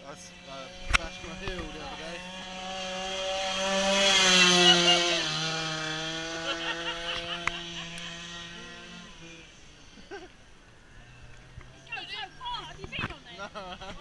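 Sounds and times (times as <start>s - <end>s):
small two-stroke engine revving: 0.0s - 10.3s.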